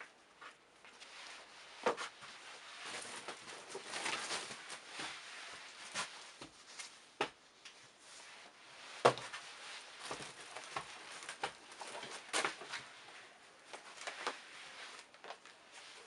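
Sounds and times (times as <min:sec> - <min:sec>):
shoes rustling and knocking: 0:08.9 - 0:13.0.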